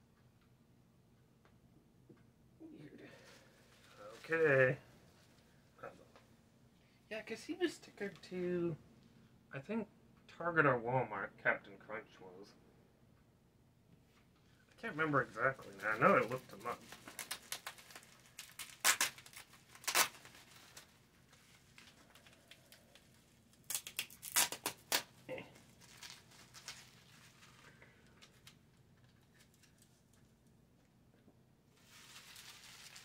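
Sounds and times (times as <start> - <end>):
packaging crinkling and rustling: 15.5 - 30.4, 31.8 - 33.0.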